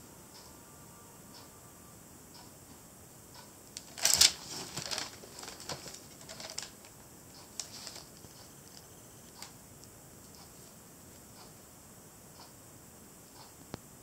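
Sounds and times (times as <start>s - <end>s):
handling clicks and rustling: 3.8s - 9.5s.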